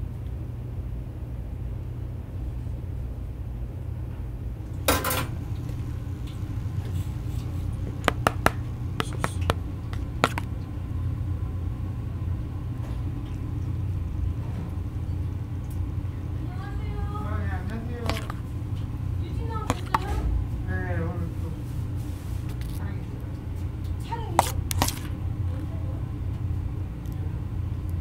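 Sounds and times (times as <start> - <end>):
metal cookware clattering: 4.9 - 5.3.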